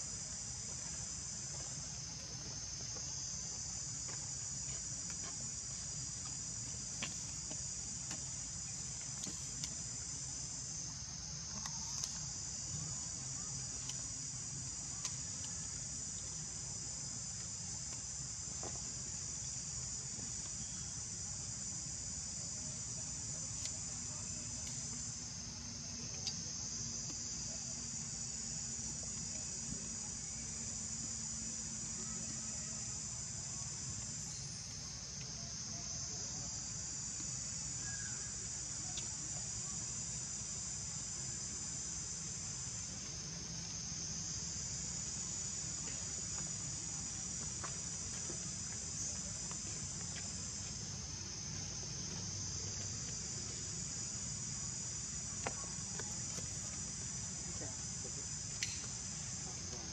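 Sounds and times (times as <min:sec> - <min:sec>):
insects chorus: 0:00.0 - 0:59.9
faint ticks: 0:13.8 - 0:16.3, 0:38.9 - 0:39.1.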